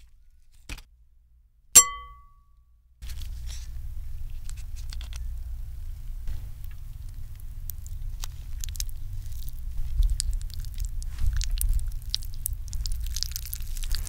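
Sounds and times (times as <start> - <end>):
wet noodle squishes: 6.6 - 14.0.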